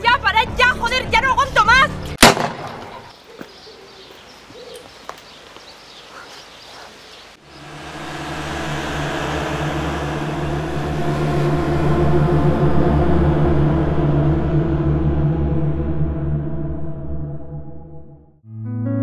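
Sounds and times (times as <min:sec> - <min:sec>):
faint outdoor ambience: 0:00.0 - 0:14.8
low droning music score: 0:07.4 - 0:19.0.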